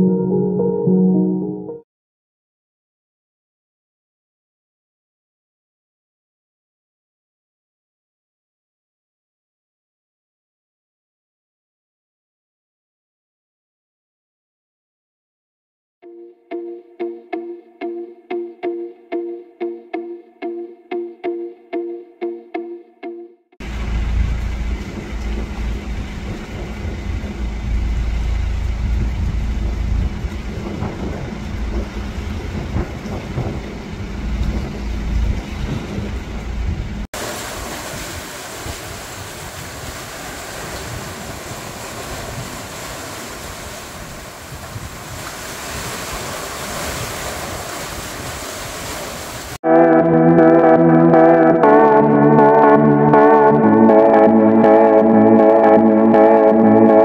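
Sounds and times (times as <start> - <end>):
guitar music: 0.0 - 1.8, 16.0 - 23.4, 49.6 - 57.0
wind buffeting microphone: 23.8 - 49.0
surf rushing in rocky gully: 37.2 - 49.6.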